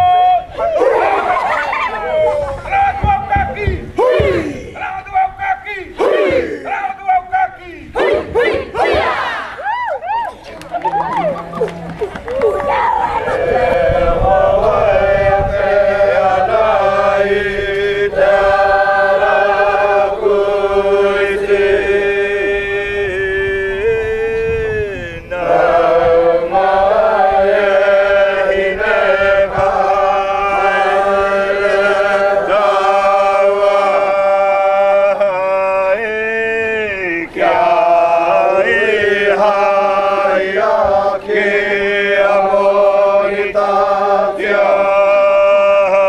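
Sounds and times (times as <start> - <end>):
group chanting in held notes: 4.0 - 4.9, 6.0 - 6.7, 7.9 - 9.6, 12.7 - 46.0.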